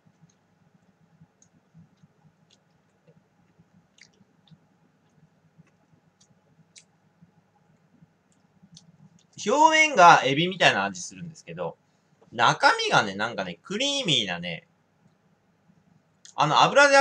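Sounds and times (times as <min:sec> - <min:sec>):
faint chewing with clicks: 0:00.0 - 0:09.4, 0:16.2 - 0:16.4.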